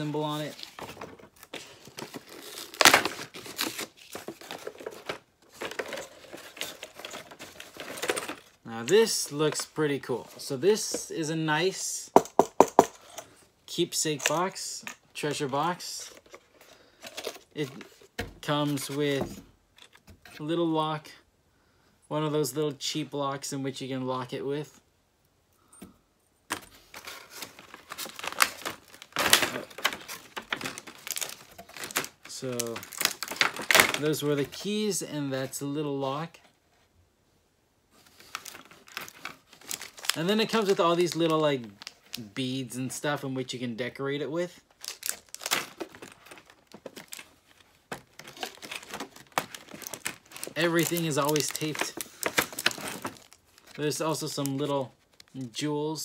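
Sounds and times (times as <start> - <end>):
packaging tearing: 0.0 - 8.3, 27.0 - 34.0, 38.2 - 42.2, 44.7 - 47.4, 48.0 - 55.4
packaging rustling and crinkling: 0.0 - 8.6, 26.5 - 35.6, 38.0 - 42.3, 44.6 - 55.4.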